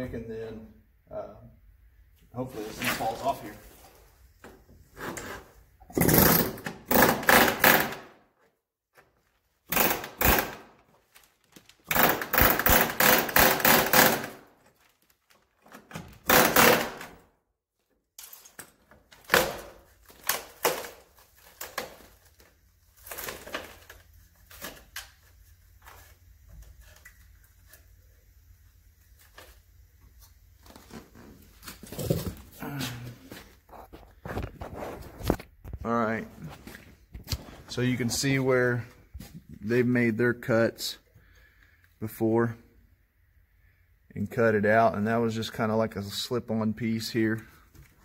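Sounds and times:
pneumatic air hammer chiselling: 0:05.9 - 0:08.1, 0:09.7 - 0:10.7, 0:11.9 - 0:14.4, 0:16.2 - 0:17.2.

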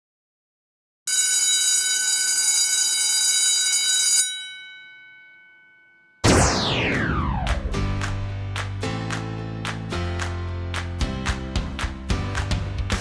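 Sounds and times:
alarm bell ringing: 0:01.1 - 0:06.3
loud falling whoosh: 0:06.2 - 0:08.3.

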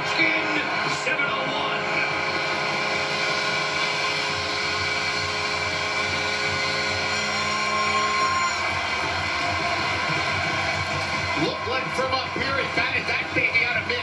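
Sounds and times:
crowd cheering: 0:00.0 - 0:14.0
goal horn: 0:06.2 - 0:08.9.

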